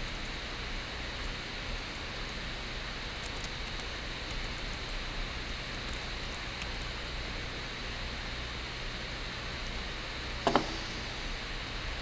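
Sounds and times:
background hiss and hum: 0.0s - 12.0s.

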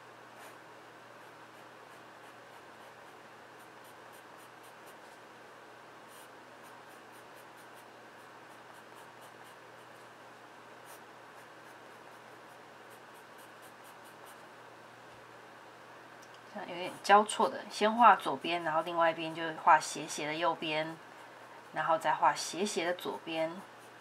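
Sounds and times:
pencil scratching on paper: 1.2s - 5.2s, 6.1s - 10.2s, 10.8s - 14.5s, 16.9s - 21.0s, 21.6s - 24.0s.

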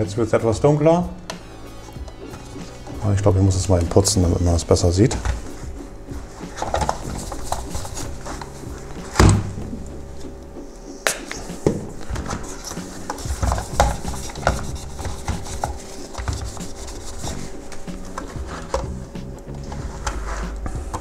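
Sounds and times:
paper towel rubbing on plastic: 1.8s - 9.2s, 11.4s - 21.0s.

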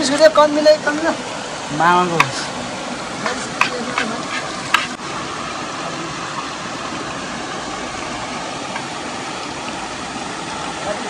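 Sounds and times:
waterfall and river rushing: 0.0s - 11.0s
knife tapping on chopping board: 3.6s - 4.1s.

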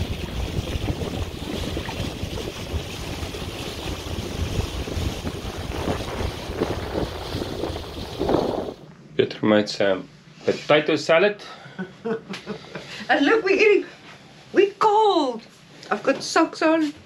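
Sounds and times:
wind buffeting microphone: 0.0s - 8.8s
choppy water washing: 0.0s - 8.9s.

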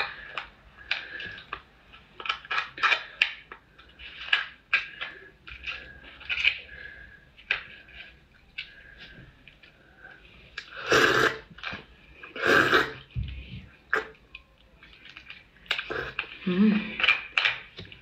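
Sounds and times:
crab shell clicking and cracking: 0.0s - 6.7s, 14.3s - 16.4s, 17.0s - 18.0s.

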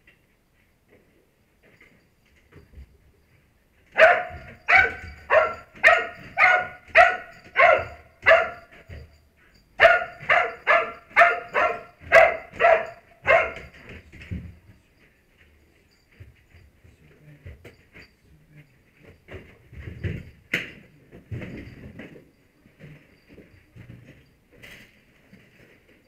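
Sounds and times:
dog barking: 4.0s - 9.0s, 9.8s - 13.8s.

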